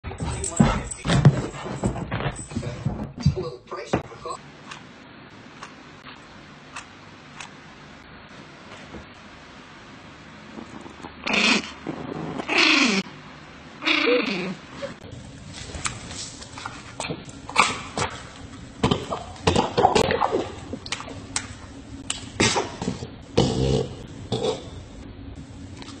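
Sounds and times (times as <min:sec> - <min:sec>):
small dog whining: 0:13.8 - 0:15.0.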